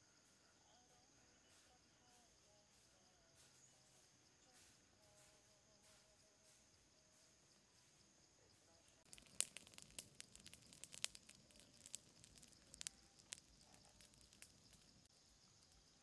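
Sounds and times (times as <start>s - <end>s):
fire crackling: 9.0s - 16.0s
sharp pops and snaps: 9.0s - 16.0s.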